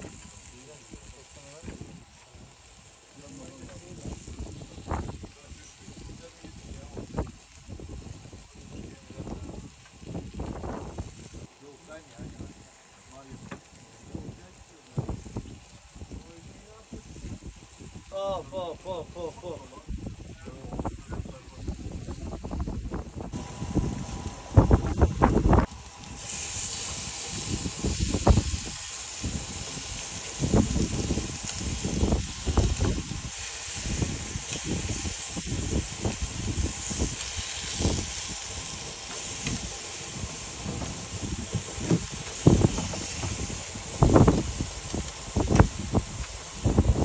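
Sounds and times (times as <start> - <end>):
fish sizzling on a grill: 0.0 - 47.0
low thumps and rumbles: 20.8 - 25.9, 34.0 - 47.0.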